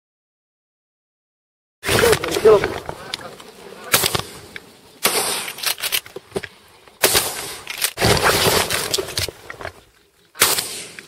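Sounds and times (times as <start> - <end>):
shotgun blasts: 5.0 - 5.7, 7.0 - 9.0, 10.4 - 11.0
gun handling clicks and knocks: 5.4 - 8.0, 8.6 - 9.8.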